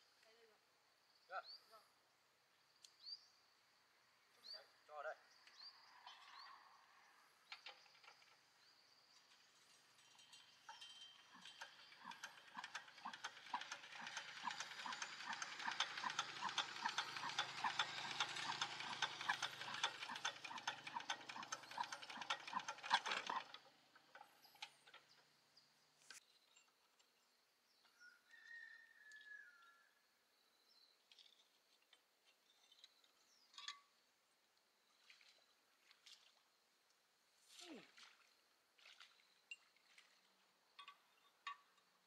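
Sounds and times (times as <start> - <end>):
rapid mechanical clicking: 11.4 - 25.0.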